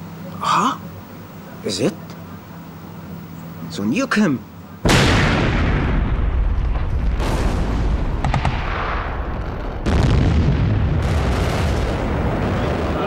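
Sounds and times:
heavy explosions rumbling: 0:04.9 - 0:13.0.

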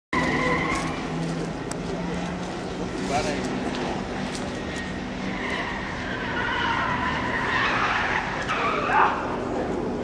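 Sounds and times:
tyres squealing: 0:00.2 - 0:01.3, 0:04.7 - 0:09.3
car engine running: 0:00.2 - 0:10.0.

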